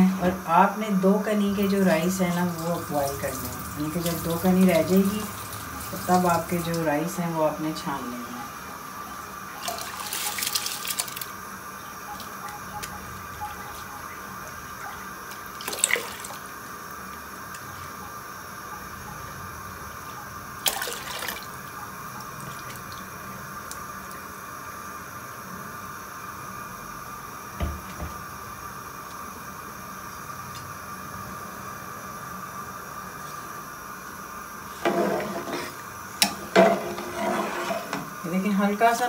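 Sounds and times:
water heating with faint hiss: 0:00.0 - 0:39.0
water splashes: 0:14.7 - 0:16.5, 0:20.6 - 0:21.6.

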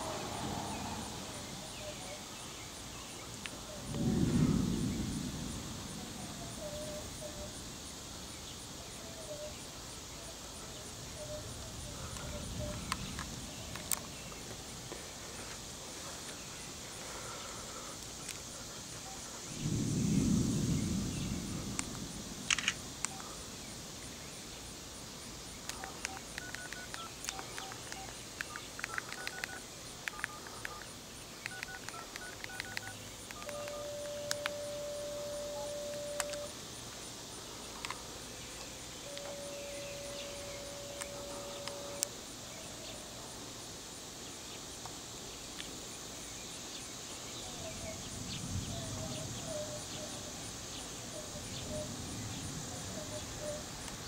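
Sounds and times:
wind rumbling on microphone: 0:00.0 - 0:09.2, 0:10.8 - 0:16.3, 0:18.0 - 0:24.6
steady hiss: 0:00.0 - 0:54.0
flat steady tones: 0:25.7 - 0:36.5, 0:39.1 - 0:42.1.

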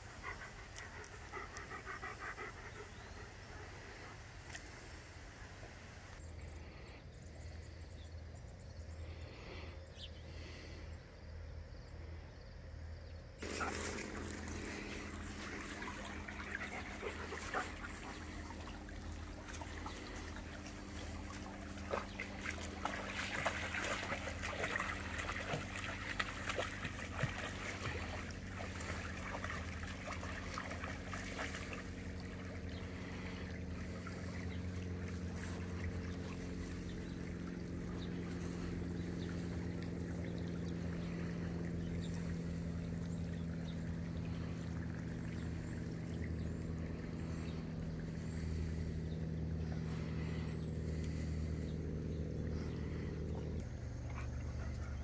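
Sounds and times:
low motor hum: 0:00.0 - 0:55.0
creek trickling: 0:13.4 - 0:55.0
dog splashing through creek: 0:13.4 - 0:55.0.

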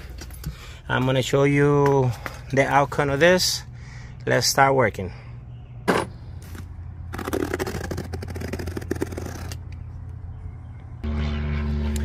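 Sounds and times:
low hum: 0:05.1 - 0:12.0.

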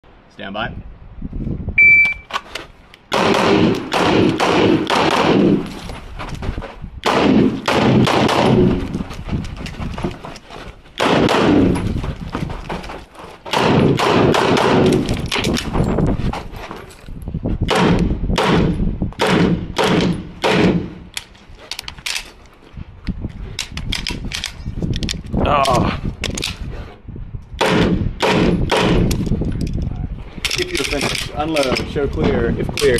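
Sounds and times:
pistol shots echoing: 0:03.1 - 0:05.7, 0:07.0 - 0:08.8, 0:11.0 - 0:11.7, 0:13.5 - 0:15.0, 0:17.7 - 0:21.1.

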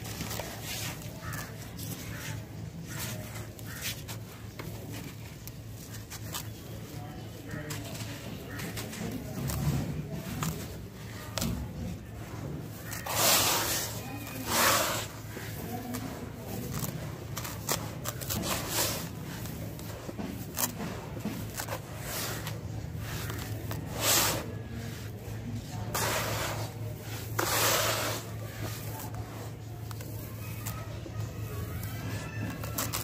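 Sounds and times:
hands digging in dry sand: 0:00.0 - 0:33.0
sand pouring hiss: 0:13.1 - 0:15.2.

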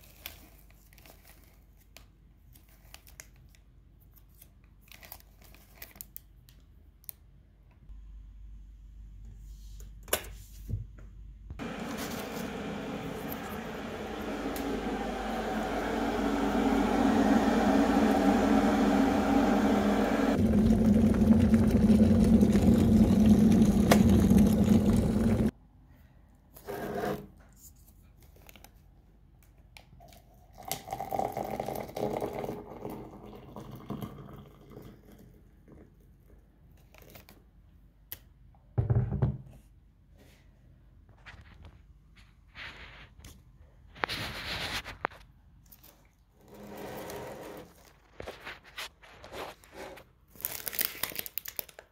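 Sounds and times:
kitchen appliance heating water: 0:11.6 - 0:25.5.

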